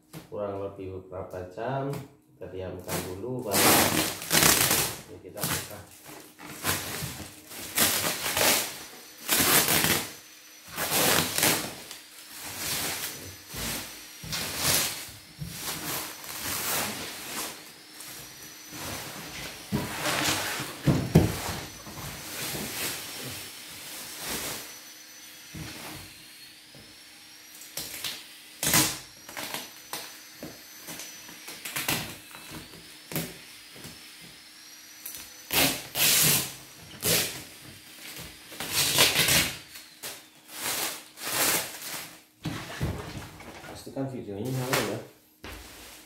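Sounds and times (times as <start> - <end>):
packing tape ripping: 2.9 - 10.1, 10.7 - 15.0, 27.6 - 30.1, 35.0 - 37.4, 38.1 - 42.2
plastic wrapping rustling: 3.0 - 10.1, 44.5 - 46.0.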